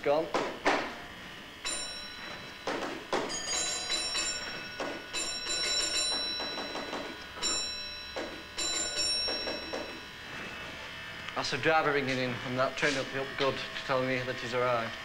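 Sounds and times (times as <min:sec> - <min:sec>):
clunks: 0:01.6 - 0:10.2
telephone bell ringing: 0:01.6 - 0:10.7.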